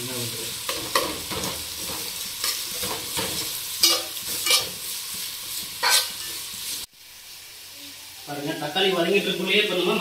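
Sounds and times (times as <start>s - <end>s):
vegetables sizzling in oil: 0.0s - 10.0s
metal spatula scraping pot: 0.7s - 6.4s.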